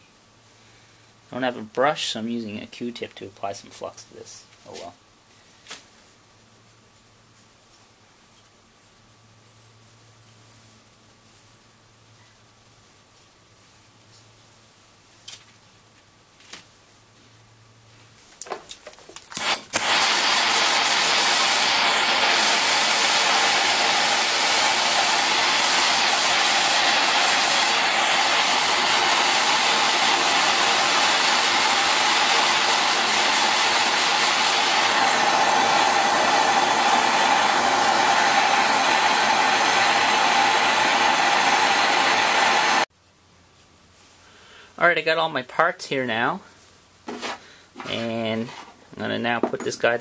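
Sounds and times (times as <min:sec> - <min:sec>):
gas torch hissing: 0:19.3 - 0:42.9.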